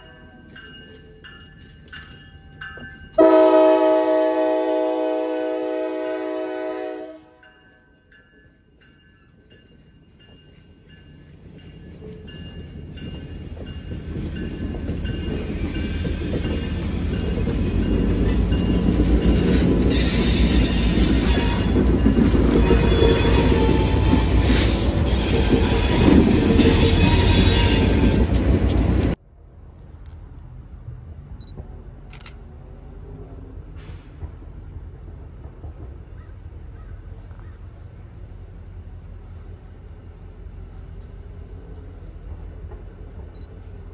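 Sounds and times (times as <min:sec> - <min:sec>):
locomotive horn: 0:03.2 - 0:07.4, 0:19.9 - 0:28.5
locomotive engine rumble: 0:09.0 - 0:43.9
wheels squealing on track: 0:22.5 - 0:28.4.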